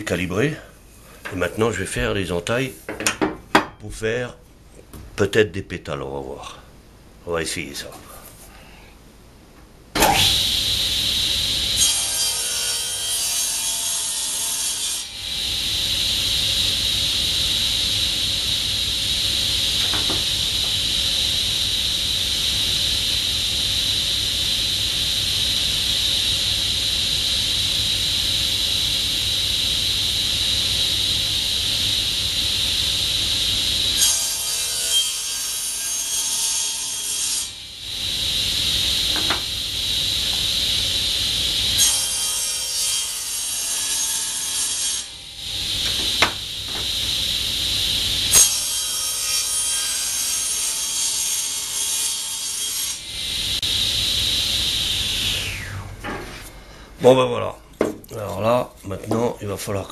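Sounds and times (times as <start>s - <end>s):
power saw cutting wood: 10.0s - 55.9s.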